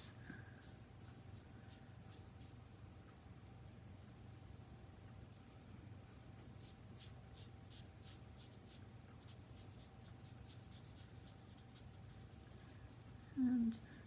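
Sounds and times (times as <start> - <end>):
faint steady hum: 0.0 - 14.0
marker tip rubbing on card: 6.6 - 13.2.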